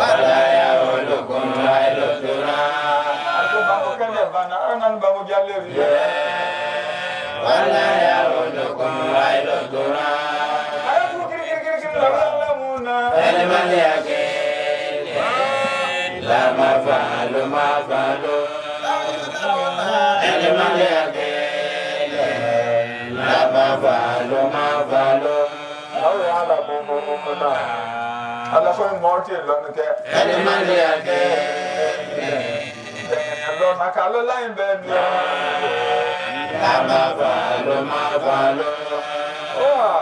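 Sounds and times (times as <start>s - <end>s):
man chanting: 2.9s - 5.8s, 10.7s - 13.2s, 18.2s - 20.4s, 22.2s - 34.9s, 35.6s - 40.0s.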